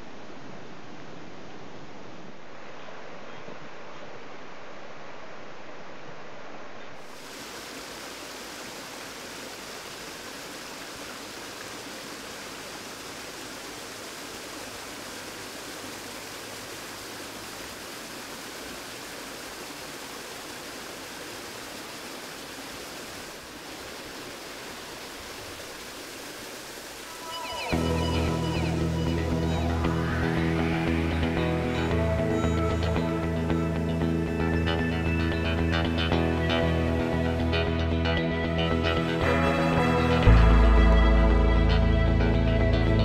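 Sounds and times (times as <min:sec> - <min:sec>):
waterfall splashing over rocks: 0:07.0 - 0:33.3.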